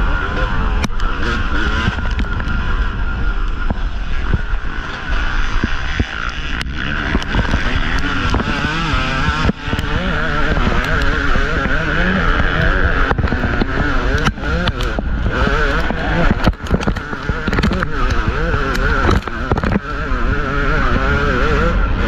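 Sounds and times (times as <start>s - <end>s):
dirt bike engine revving: 0.0s - 22.0s
wind on microphone: 0.0s - 22.0s.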